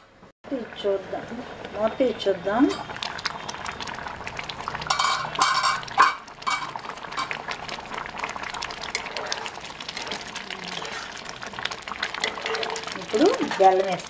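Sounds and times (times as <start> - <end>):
water simmering with popping bubbles: 0.5 - 14.0
metal cookware clinks: 4.9 - 7.4.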